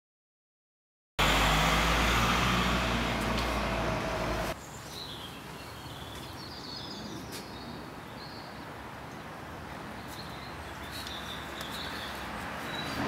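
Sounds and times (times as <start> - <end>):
birds chirping: 3.0 - 13.0.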